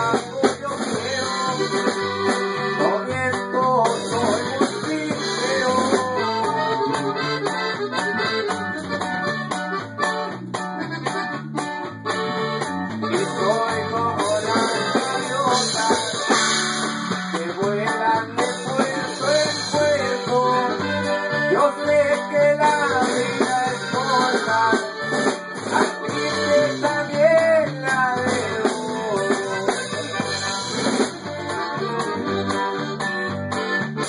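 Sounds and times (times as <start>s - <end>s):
accordion: 0.0s - 34.0s
bass line: 0.0s - 34.0s
plucked guitar: 0.0s - 34.0s.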